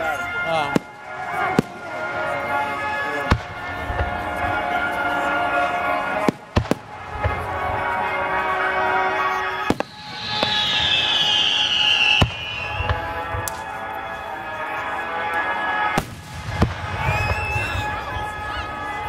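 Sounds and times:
firework whistle falling in pitch: 0:07.1 - 0:14.2, 0:15.9 - 0:19.0.

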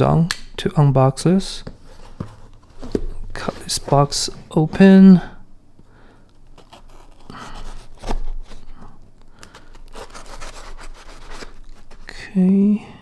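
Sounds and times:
knife cutting cardboard: 0:06.6 - 0:08.6, 0:09.7 - 0:12.1.

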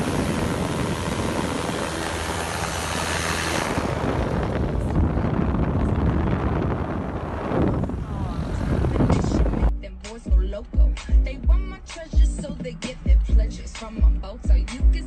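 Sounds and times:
propeller engine running: 0:00.0 - 0:09.7.

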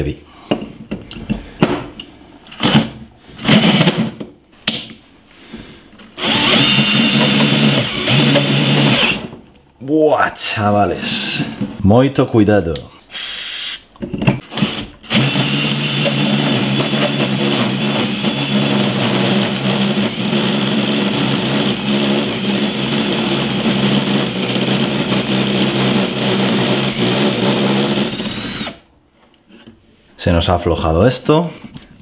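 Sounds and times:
drill motor whine: 0:03.4 - 0:04.2, 0:06.0 - 0:09.3, 0:13.1 - 0:13.8, 0:14.4 - 0:28.8.

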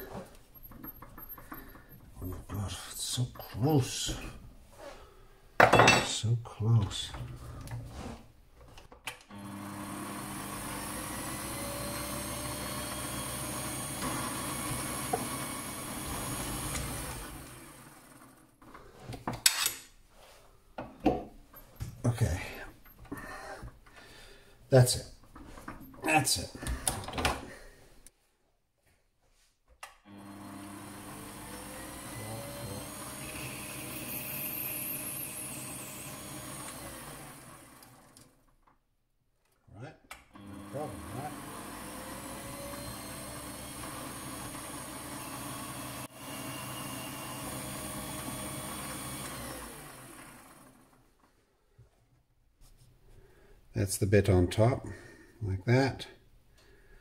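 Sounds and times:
lathe motor whining: 0:09.3 - 0:18.5, 0:30.1 - 0:38.4, 0:40.4 - 0:51.0.

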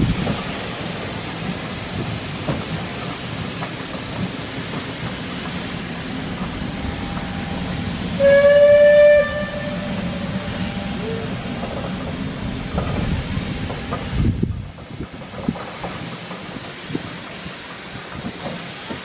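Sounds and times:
train coaches rumbling past: 0:00.0 - 0:19.0
steam locomotive whistle: 0:07.0 - 0:11.5.

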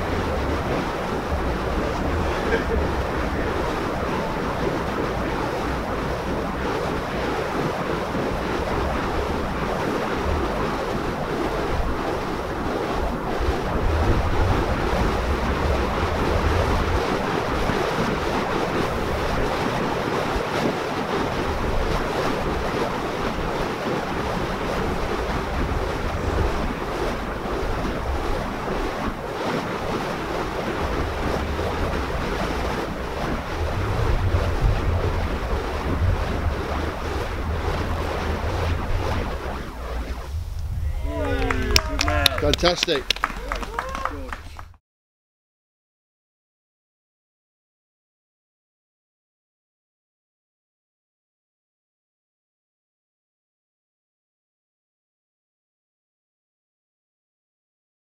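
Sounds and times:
wind on microphone: 0:00.0 - 0:44.8.

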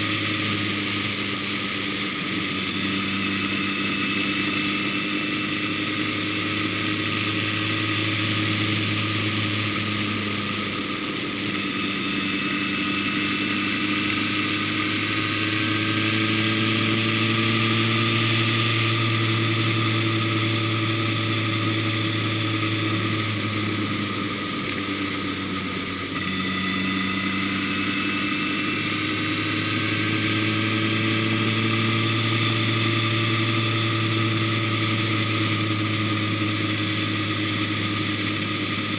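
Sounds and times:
high hiss: 0:00.0 - 0:18.9
vehicle engine cruising: 0:00.0 - 0:38.9.

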